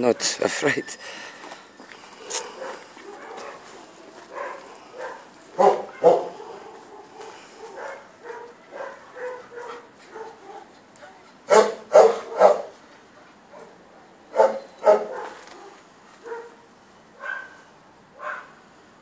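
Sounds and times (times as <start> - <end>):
dog barking: 2.2 - 10.7, 11.5 - 12.8, 13.5 - 16.6, 17.2 - 17.6, 18.2 - 18.6.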